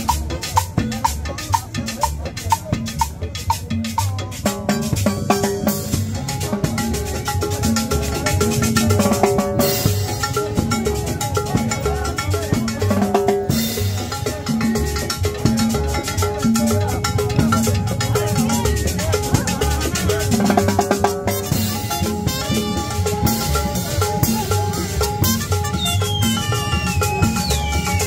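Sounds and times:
live dance band playing: 0.0s - 28.0s.

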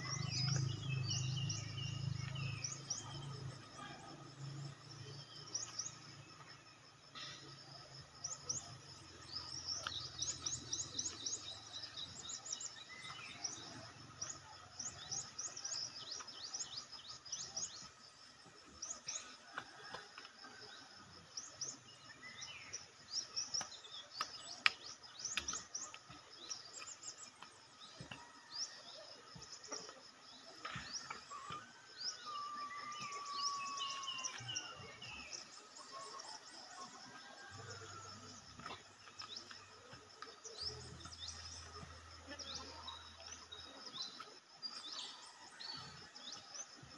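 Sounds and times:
high insect hum: 20.6s - 46.9s
birds chirping: 20.8s - 46.9s.

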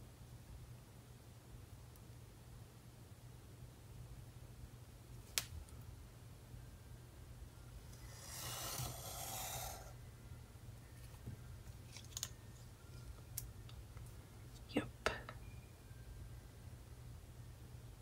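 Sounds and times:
marker drawn along ruler: 7.9s - 10.0s.

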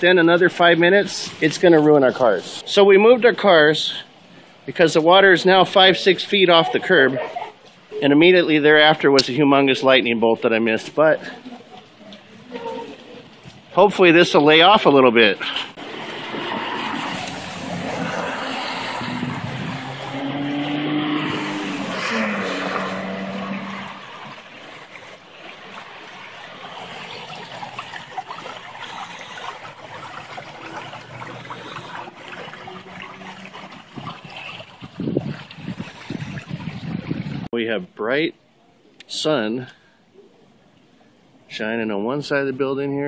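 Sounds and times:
rain and runoff water: 0.0s - 37.6s
car driving through water: 14.9s - 37.4s.

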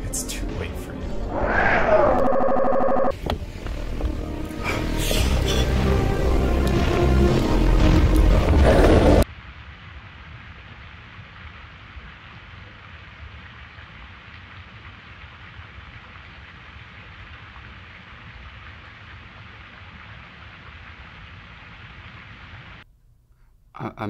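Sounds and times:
steady rushing noise: 1.0s - 3.1s.

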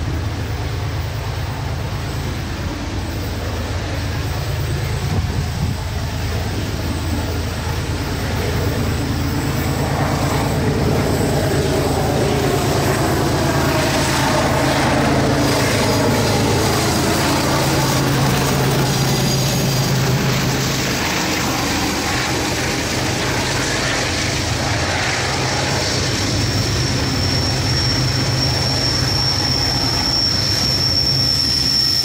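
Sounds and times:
diesel locomotive engines working hard: 0.0s - 32.0s.

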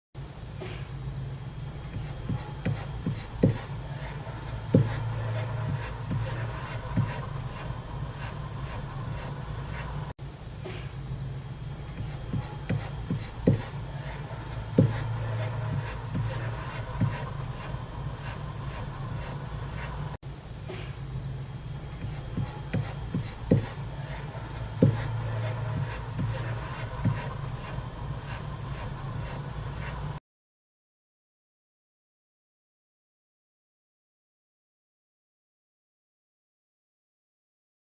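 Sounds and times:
steady low hum: 0.2s - 30.2s.

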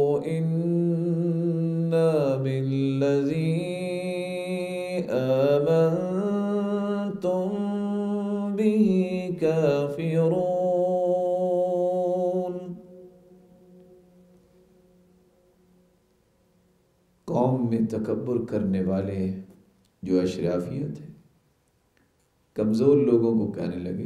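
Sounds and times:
man chanting melodically: 0.0s - 13.2s, 17.3s - 21.2s, 22.6s - 24.0s.

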